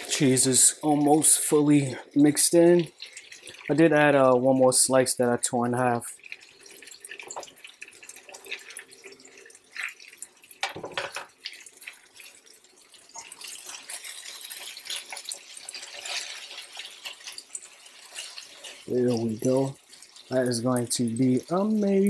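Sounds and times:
meat sizzling on a griddle: 6.3s - 22.0s
spatula scraping a griddle: 13.4s - 18.9s.

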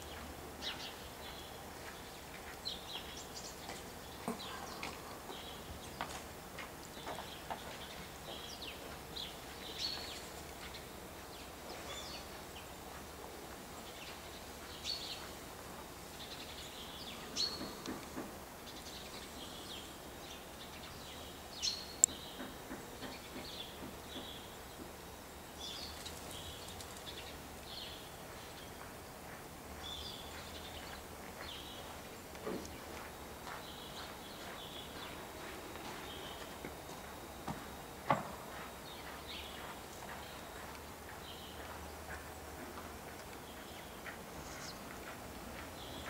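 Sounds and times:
sparrows chirping: 0.0s - 37.4s, 38.5s - 46.0s.

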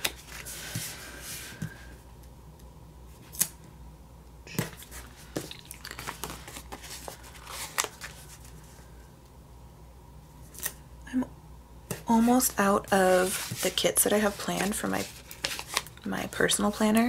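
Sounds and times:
paper crackles and taps: 4.5s - 8.2s.

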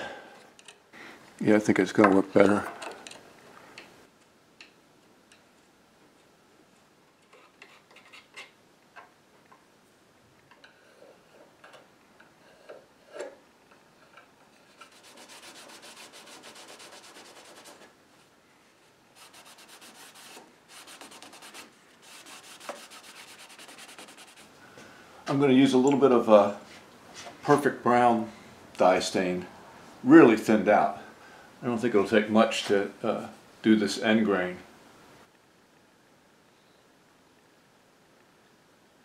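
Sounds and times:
brush and cloth rubbing wood: 14.4s - 18.3s, 19.1s - 24.6s.

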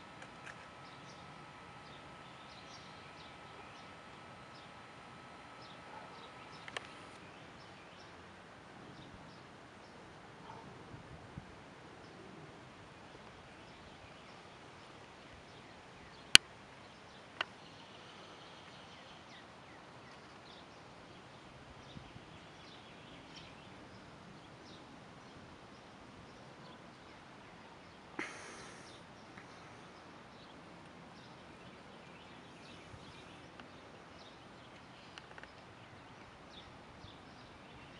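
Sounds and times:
low steady hiss: 0.0s - 37.9s
faint high ticks: 5.8s - 7.2s
sharp click: 6.5s - 7.2s.

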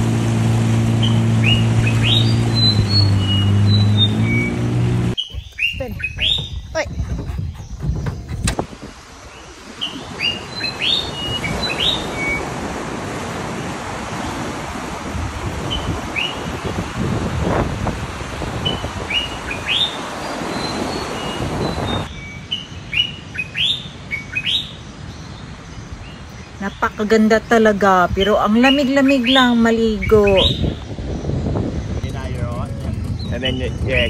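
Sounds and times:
small birds chirping: 1.0s - 12.4s, 18.4s - 34.0s.

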